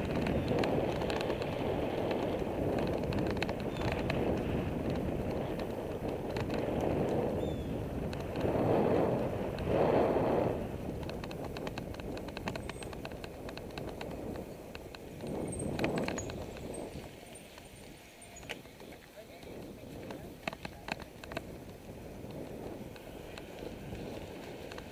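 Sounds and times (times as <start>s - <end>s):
bicycle tyre noise on pavement: 0.0s - 24.9s
wind rushing over microphone: 0.0s - 24.9s.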